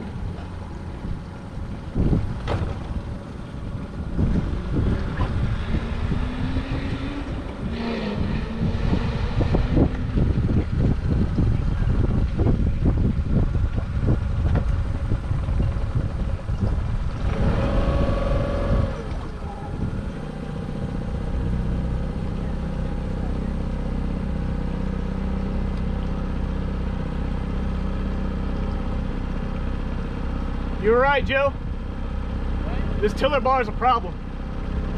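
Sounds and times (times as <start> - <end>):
wind buffeting microphone: 0.0 - 25.2.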